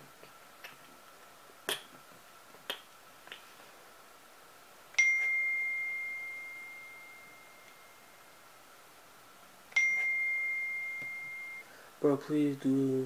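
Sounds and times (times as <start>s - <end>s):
bell-like dings: 5.0s - 8.2s, 9.7s - 11.7s.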